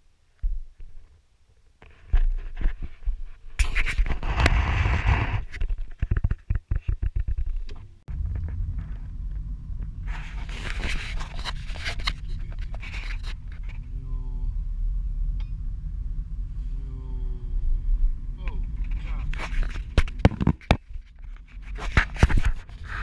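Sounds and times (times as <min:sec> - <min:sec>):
camera handling scrapes: 0:03.6 - 0:06.4, 0:10.1 - 0:13.8, 0:18.9 - 0:23.0
low car engine: 0:07.6 - 0:21.7.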